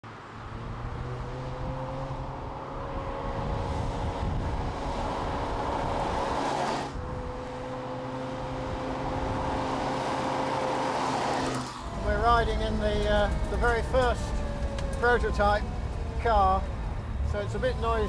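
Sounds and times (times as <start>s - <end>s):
car engine drone: 0.0s - 18.0s
tyre and wind rush: 0.8s - 7.6s.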